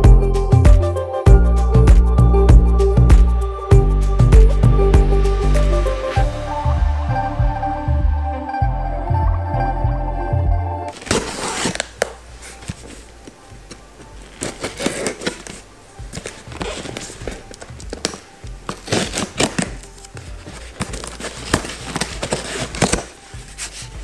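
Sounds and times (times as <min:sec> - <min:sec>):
knife slitting packing tape: 0:10.9 - 0:12.2, 0:14.4 - 0:15.6, 0:16.2 - 0:23.9
cardboard scrapes and taps: 0:14.3 - 0:24.0.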